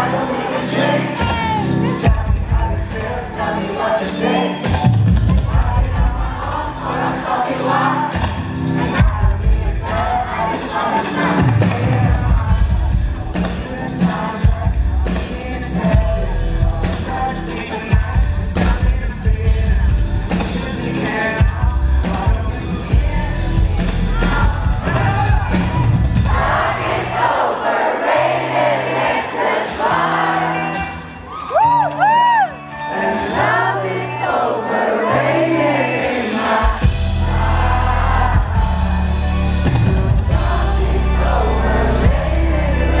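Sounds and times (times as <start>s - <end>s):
crowd singing along: 0.0s - 43.0s
live pop-rock band: 0.0s - 43.0s
man singing into microphone: 8.8s - 25.8s
person whooping: 31.3s - 32.6s.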